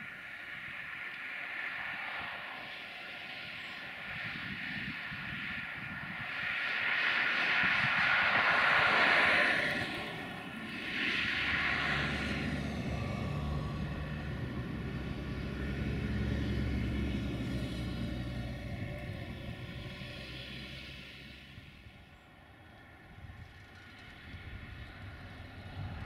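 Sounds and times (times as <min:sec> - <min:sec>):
locomotive low hum: 0:11.3 - 0:26.0.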